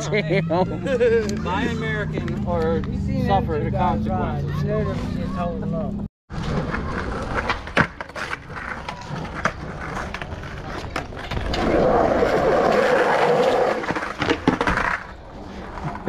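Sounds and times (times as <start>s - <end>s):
skateboard wheels rolling on concrete: 6.3s - 16.0s.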